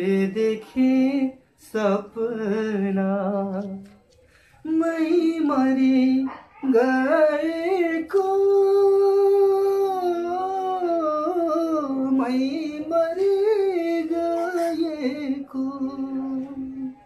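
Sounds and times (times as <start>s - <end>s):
man singing unaccompanied: 0.0s - 17.0s
short breath: 4.2s - 4.7s.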